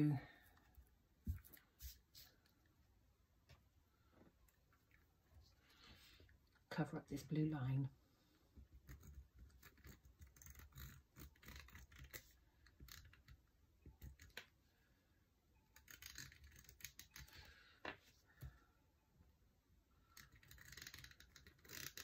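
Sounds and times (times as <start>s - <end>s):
tape roller scraping and clicking: 20.2s - 22.0s.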